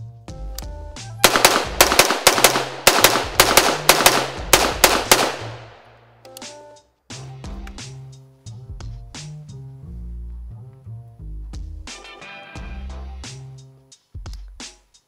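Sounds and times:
background music with bass: 0.0 - 1.4, 6.2 - 15.0
rifle shots: 1.2 - 5.9.

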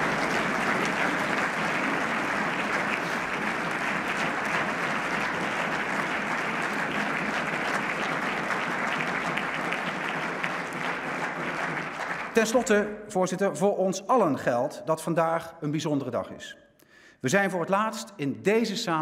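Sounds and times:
crowd applauding: 0.0 - 12.8.

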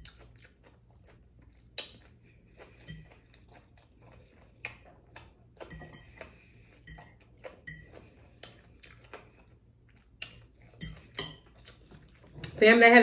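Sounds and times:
soft chewing: 0.0 - 12.6
fork clinking on plate: 10.8 - 11.6.

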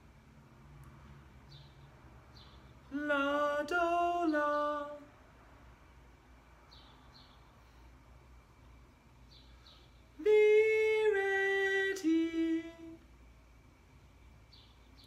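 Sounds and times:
man singing unaccompanied: 2.8 - 5.2, 10.1 - 13.1.

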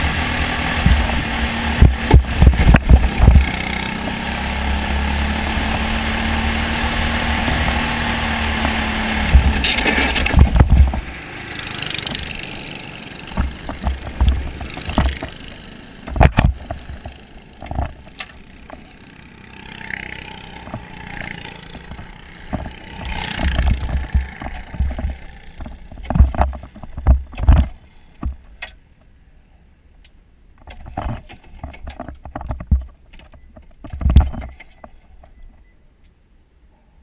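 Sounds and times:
kart engine pull-start cranking: 7.4 - 11.0.

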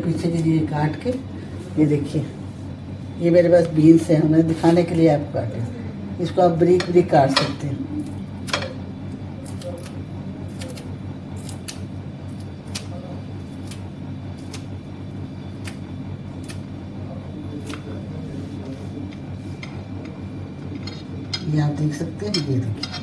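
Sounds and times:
steady low hum: 0.0 - 23.0
scissors snipping beans: 9.4 - 13.8, 16.4 - 16.7.

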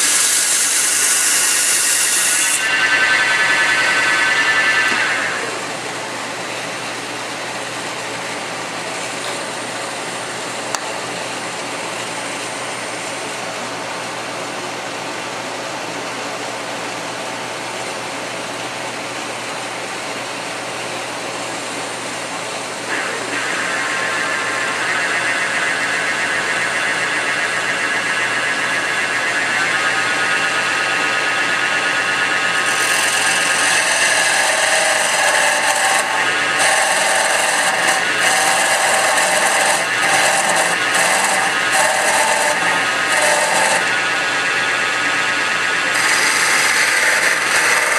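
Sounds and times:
wood lathe running: 0.0 - 11.4, 22.9 - 47.9
turning tool scraping wood: 32.6 - 44.0, 45.9 - 47.9.

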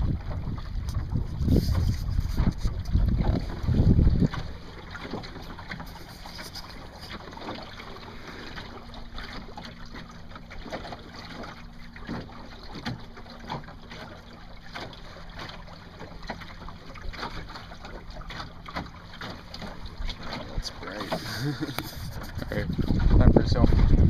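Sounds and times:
wind on microphone: 0.0 - 4.7, 20.6 - 24.0
water lapping against boat hull: 0.0 - 24.0.

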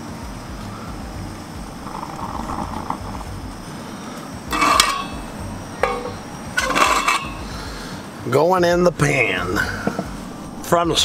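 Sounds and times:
gas burner running: 0.0 - 11.0
spatula clattering on pan: 4.5 - 5.2, 5.8 - 7.4
ringing knock: 4.5 - 7.4
spatula scraping frying pan: 4.5 - 7.5.

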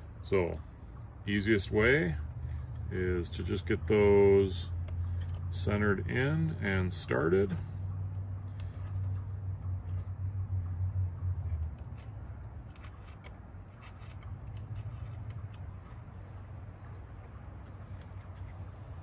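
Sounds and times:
steady low hum: 0.0 - 19.0
allen key clicking on screws: 4.8 - 5.6, 11.4 - 19.0.

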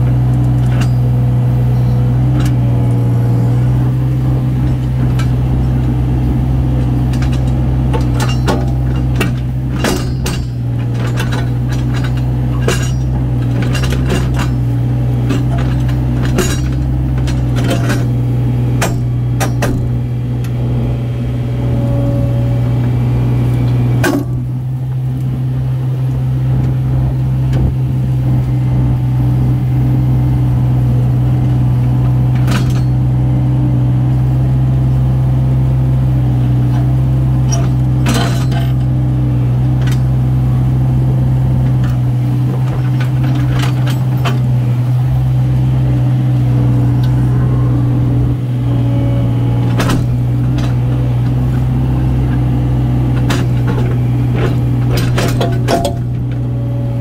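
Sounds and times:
diesel engine running: 0.0 - 57.0
sharp metal clanks and knocks: 0.2 - 1.2, 6.8 - 20.0, 24.0 - 24.5, 32.3 - 33.1, 36.7 - 39.0, 41.7 - 44.6, 49.6 - 52.4, 53.0 - 56.4.

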